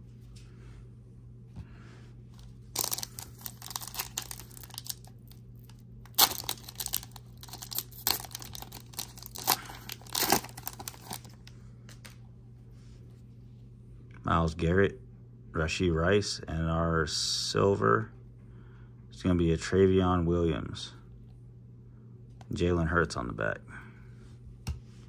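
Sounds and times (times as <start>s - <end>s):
plastic wrapper crinkling: 2.4s - 12.2s.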